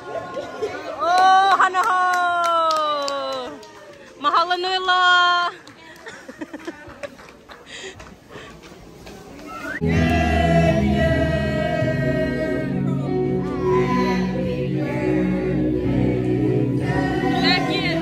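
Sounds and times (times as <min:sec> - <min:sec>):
music with singing voices: 0:09.8 - 0:18.0.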